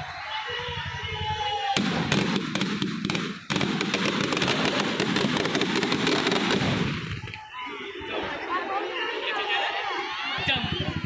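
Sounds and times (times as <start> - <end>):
firecrackers crackling: 1.8 - 7.5.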